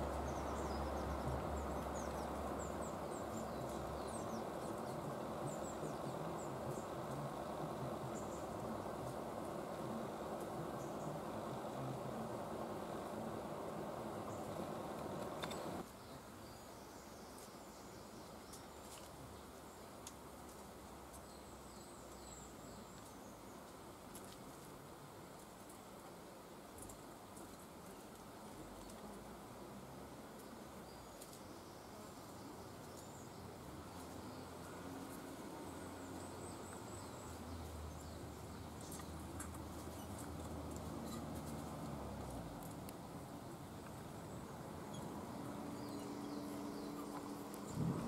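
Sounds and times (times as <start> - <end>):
outdoor background hiss: 0.0 - 48.0
songbirds chirping: 0.0 - 48.0
low rumble: 46.8 - 48.0
rushing noise: 47.0 - 48.0.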